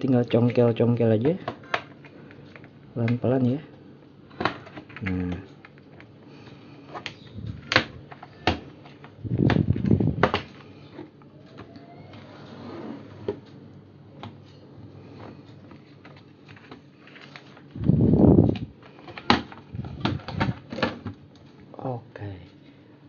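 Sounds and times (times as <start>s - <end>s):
plastic scraping: 16.1s - 21.0s.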